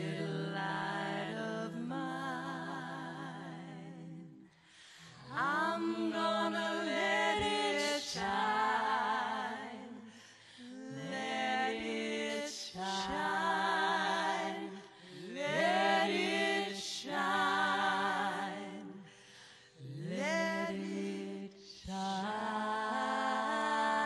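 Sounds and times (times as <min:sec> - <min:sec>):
women singing close harmony: 0:00.0 - 0:24.0.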